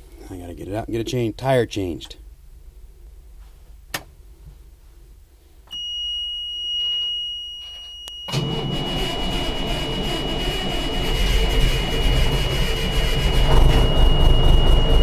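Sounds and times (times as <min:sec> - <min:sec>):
high-pitched warning buzzer: 0:05.7 - 0:15.0
diesel engine starter cranking: 0:08.3 - 0:15.0.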